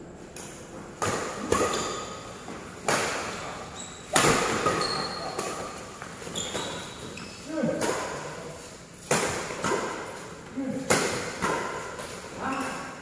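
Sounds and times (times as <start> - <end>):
rackets hitting shuttlecock: 0.3 - 7.1, 7.7 - 8.4, 9.0 - 12.9
shoes squeaking on court: 1.5 - 2.7, 3.3 - 7.5.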